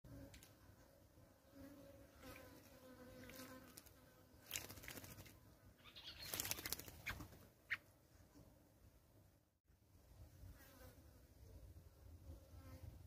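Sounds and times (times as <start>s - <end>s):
faint insect buzz: 0.1s - 6.8s
bird splashing in water: 3.2s - 5.4s, 6.1s - 7.2s
bird wings fluttering: 3.2s - 7.5s.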